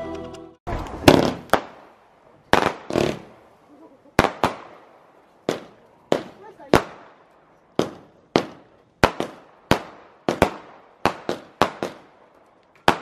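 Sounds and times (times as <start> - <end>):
firework bangs: 0.7 - 13.0.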